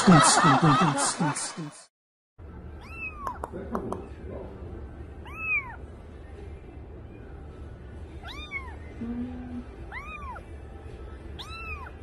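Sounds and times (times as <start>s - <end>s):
kitten meowing: 2.8s - 3.5s, 5.2s - 5.8s, 8.2s - 8.8s, 9.5s - 10.4s, 11.4s - 12.0s.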